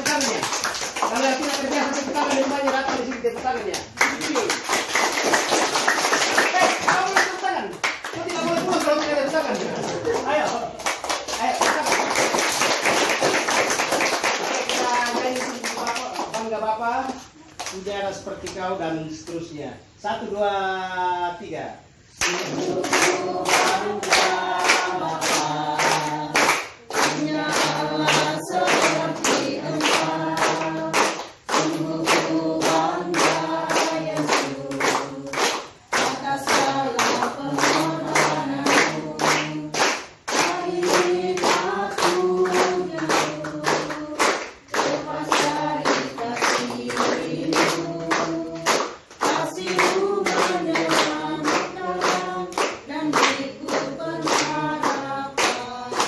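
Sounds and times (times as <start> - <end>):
rhythmic hand clapping: 0.0 - 18.6, 22.1 - 56.0
group of people singing: 22.1 - 56.0.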